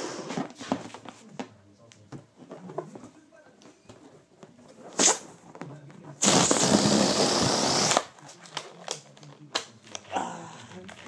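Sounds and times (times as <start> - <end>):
balloon deflating hiss: 4.9 - 5.2, 6.2 - 8.1.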